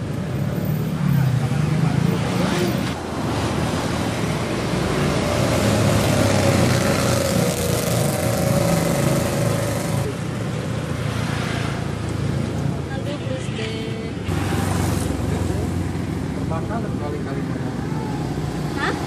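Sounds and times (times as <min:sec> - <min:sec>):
street traffic: 0:00.0 - 0:19.0
vehicle passing: 0:01.3 - 0:19.0.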